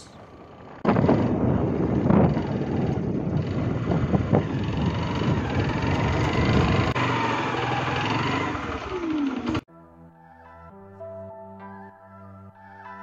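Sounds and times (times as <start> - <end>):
motorcycle engine running: 0.0 - 9.6
wind rushing over microphone: 0.8 - 8.8.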